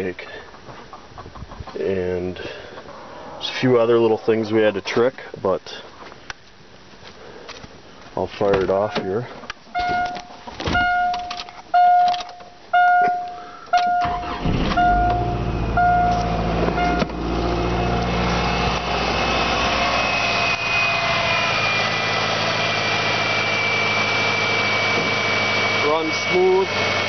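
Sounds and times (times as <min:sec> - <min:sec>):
car warning chime dinging: 0:09.8 - 0:17.2
car engine cranking and idling: 0:09.8 - 0:27.0.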